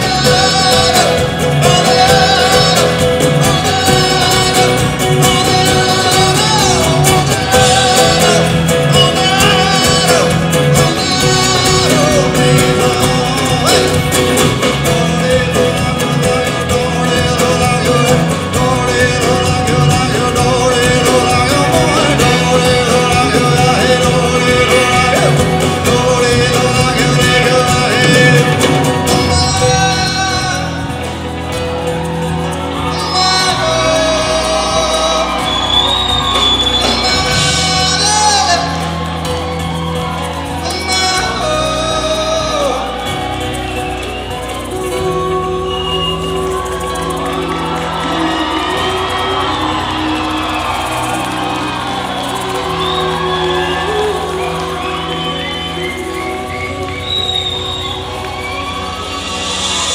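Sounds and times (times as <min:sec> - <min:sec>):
lead singer: 0:00.0 - 0:59.9
live folk-rock band: 0:00.0 - 0:59.9.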